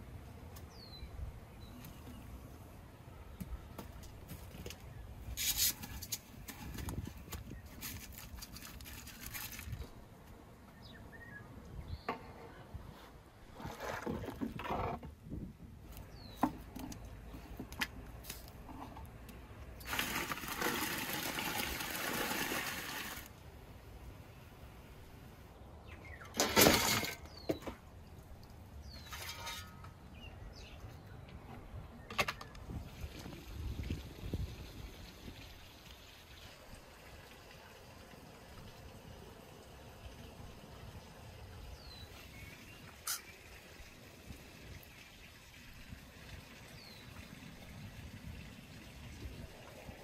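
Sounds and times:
birds chirping: 10.6s - 12.6s, 25.5s - 26.4s
water sloshing and pouring: 19.8s - 23.3s.

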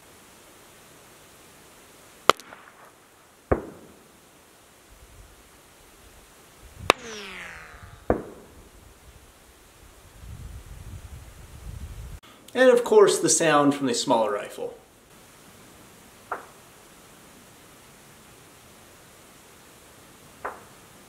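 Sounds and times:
rifle bullet crack: 2.3s - 3.9s
falling whine: 6.9s - 9.3s.

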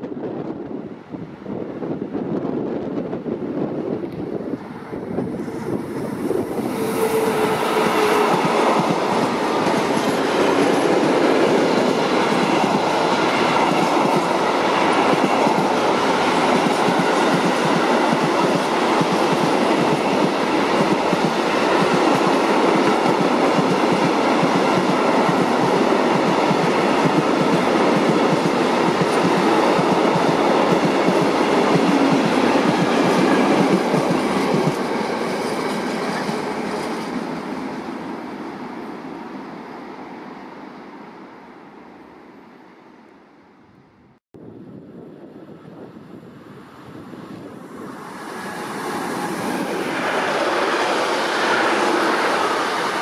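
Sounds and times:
train wheels clattering over rails: 5.2s - 37.4s.

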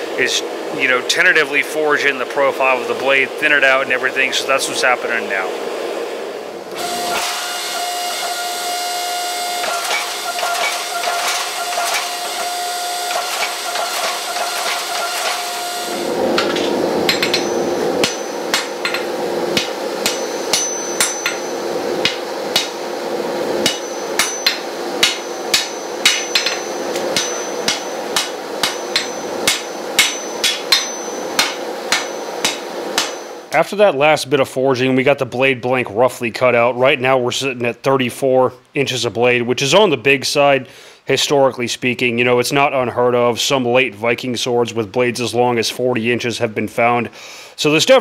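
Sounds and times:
forge hissing and humming: 0.0s - 33.7s
hammer striking hot steel: 9.6s - 22.9s, 23.6s - 33.6s.

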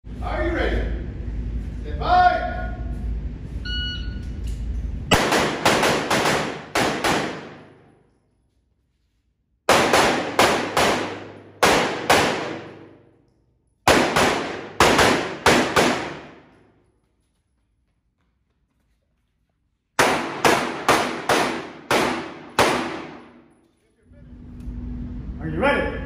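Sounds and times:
handgun shots echoing: 5.1s - 7.9s, 9.7s - 13.0s, 13.9s - 16.6s, 20.0s - 23.4s.

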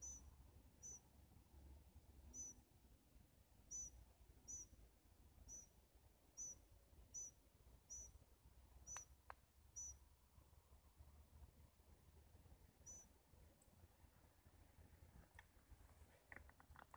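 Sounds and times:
small bird chirping: 0.0s - 1.1s, 2.3s - 2.7s, 3.6s - 4.8s, 5.4s - 8.2s, 8.8s - 10.1s, 12.7s - 13.2s
low background rumble: 0.0s - 16.9s.

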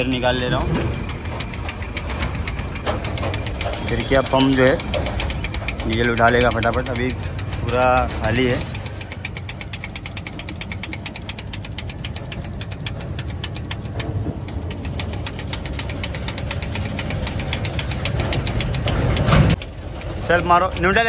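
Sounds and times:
engine idling with ticking: 0.0s - 21.0s.

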